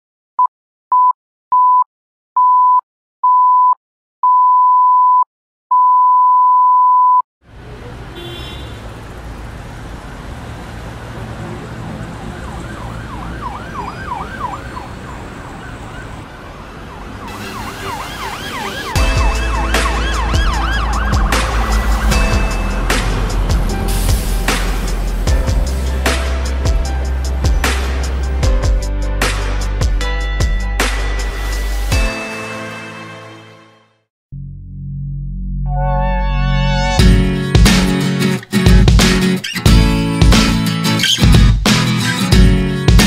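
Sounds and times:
heavy low beat: 19.0s - 32.2s, 37.0s - 38.0s, 38.6s - 43.0s.

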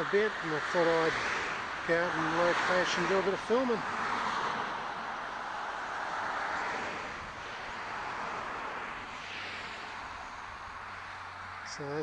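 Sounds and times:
steady rushing noise: 0.0s - 12.0s.

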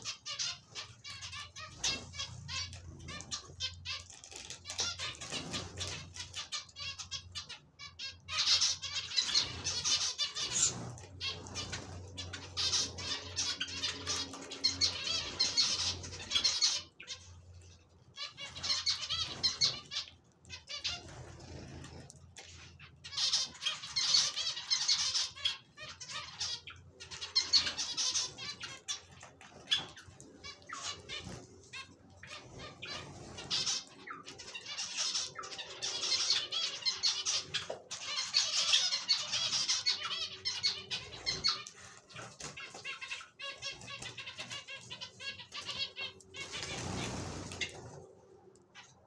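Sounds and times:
finches chattering: 0.0s - 17.2s, 18.2s - 21.6s, 22.8s - 47.9s
wings fluttering: 0.0s - 48.9s.

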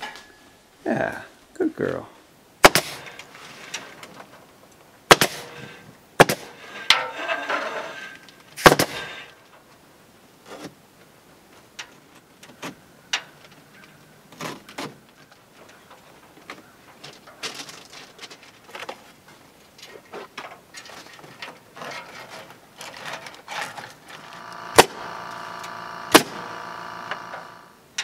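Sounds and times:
pneumatic stapler firing: 2.6s - 3.2s, 5.1s - 6.6s, 8.6s - 9.2s, 24.2s - 27.6s
stapler clicks: 24.7s - 27.5s.

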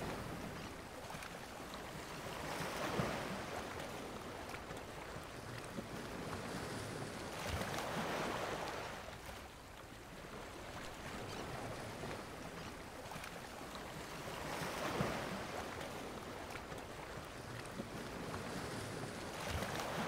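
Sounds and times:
ocean waves washing in: 0.0s - 1.0s.

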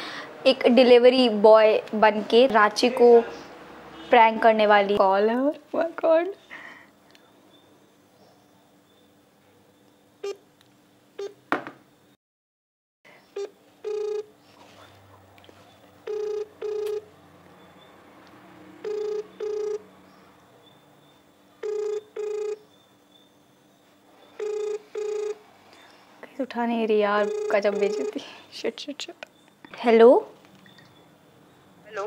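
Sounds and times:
phone ringback tone: 13.4s - 14.3s, 16.0s - 17.1s, 18.8s - 19.9s, 21.6s - 22.7s, 24.4s - 25.5s, 27.2s - 28.3s.

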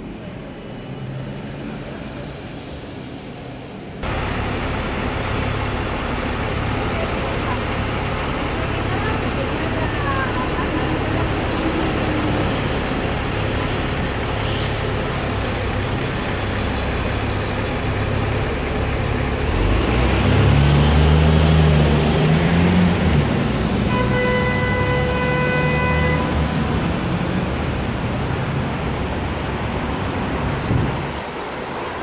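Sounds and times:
traffic engines rumbling: 0.0s - 32.0s
heavy vehicle passing: 4.0s - 32.0s
vehicle horn: 23.9s - 26.4s.

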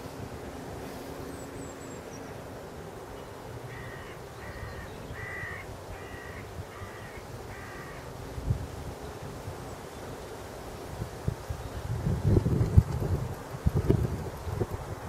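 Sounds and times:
bird calling: 3.1s - 8.1s
wind noise on microphone: 3.7s - 9.7s, 10.7s - 15.0s.

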